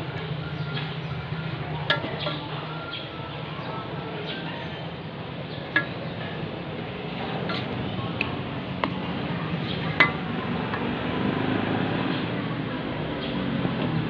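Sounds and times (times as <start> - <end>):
metal spatula knocking against pan: 5.7 - 6.2, 10.0 - 10.2.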